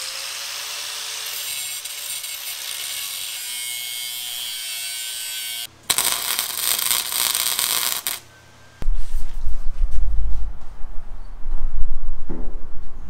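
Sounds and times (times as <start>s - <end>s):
angle grinder on steel: 0.0s - 8.2s
welding arc crackling: 5.9s - 8.3s.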